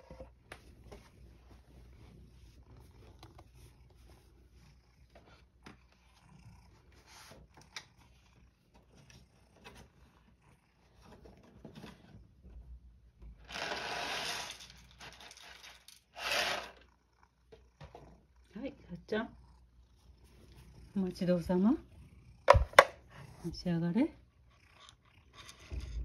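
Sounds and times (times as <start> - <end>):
faint clicks and rustles: 0.0 - 13.4.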